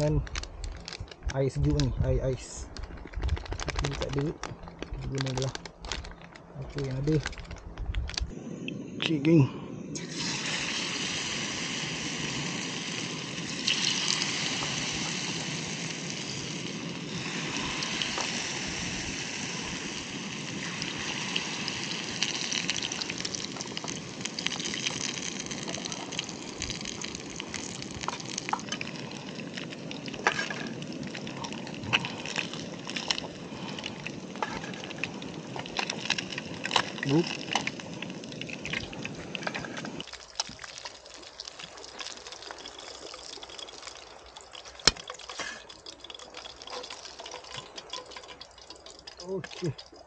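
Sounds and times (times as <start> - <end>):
fish sizzling in hot oil: 10.0 - 50.0.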